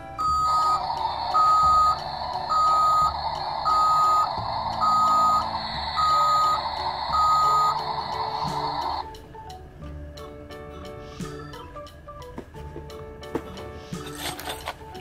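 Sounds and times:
toy reversing alarm beeps: 0:00.2 - 0:09.0.

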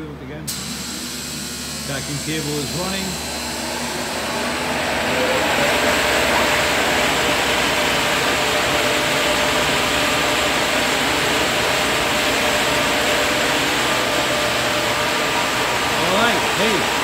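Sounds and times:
vacuum pump running: 0:00.0 - 0:17.0.

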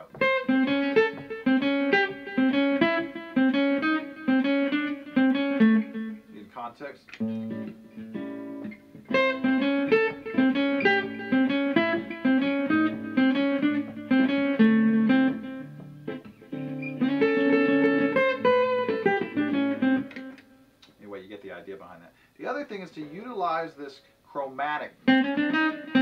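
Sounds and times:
acoustic guitar blues lick: 0:00.0 - 0:06.4, 0:07.2 - 0:20.4, 0:25.0 - 0:26.0.

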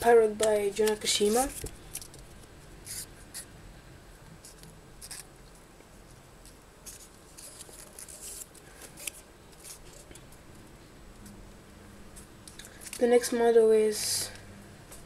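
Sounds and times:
folded paper rustling and crinkling: 0:00.8 - 0:02.4, 0:06.8 - 0:10.1.

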